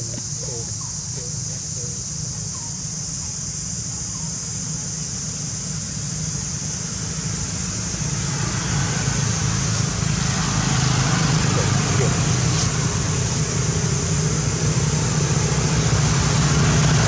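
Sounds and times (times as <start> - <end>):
constant high hiss: 0.0 - 17.0
low rumble: 6.3 - 17.0.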